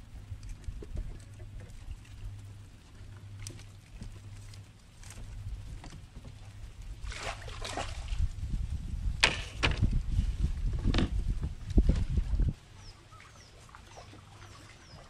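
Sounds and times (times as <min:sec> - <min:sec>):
water splash: 0:07.0 - 0:08.2
knocks on wooden boat: 0:10.8 - 0:11.2.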